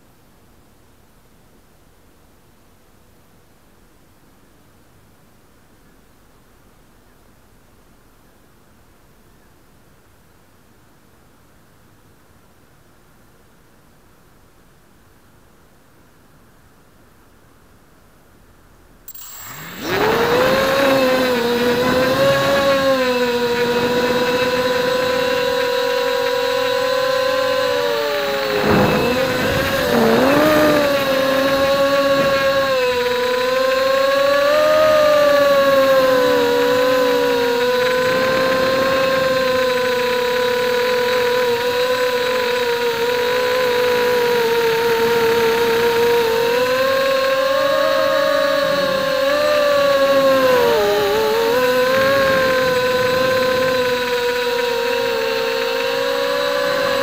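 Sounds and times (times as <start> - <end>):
drone propellers buzzing whine: 19.1 - 57.0.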